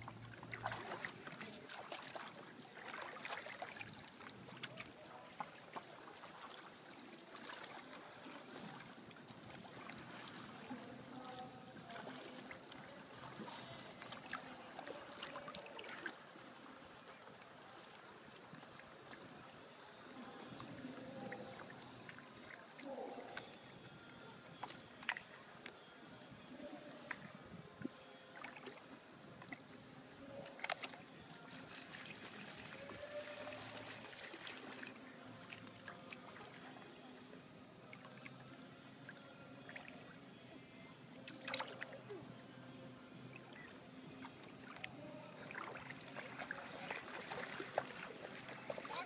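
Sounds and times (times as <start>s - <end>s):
paddle splashing in water: 0.0s - 11.2s, 11.8s - 16.3s, 41.3s - 42.0s, 43.3s - 49.0s.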